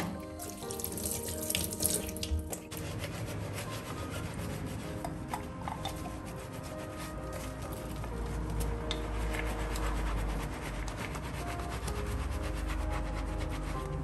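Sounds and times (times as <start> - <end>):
tap water running: 0.0 - 2.8
sponge scrubbing in steel sink: 0.0 - 8.1.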